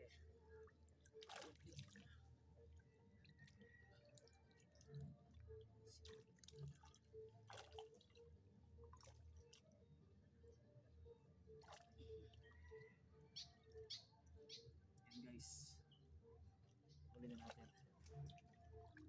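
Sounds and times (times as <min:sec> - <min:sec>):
water dripping and splashing: 0:01.1 - 0:02.2, 0:06.0 - 0:08.2, 0:17.2 - 0:19.0.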